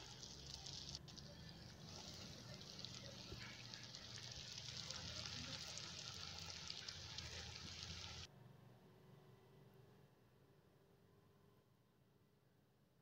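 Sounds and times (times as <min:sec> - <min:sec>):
potato sticks deep-frying in oil: 0:00.0 - 0:08.3.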